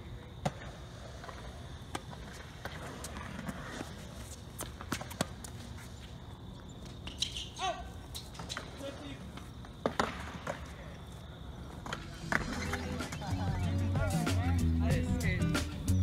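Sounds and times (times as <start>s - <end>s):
footsteps on court: 1.2s - 13.2s.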